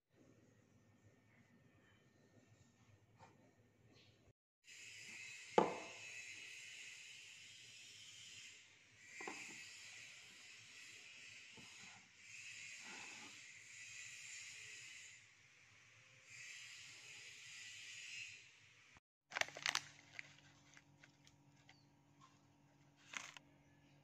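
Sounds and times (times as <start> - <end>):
loud crinkly crackling: 19.3 - 21.7.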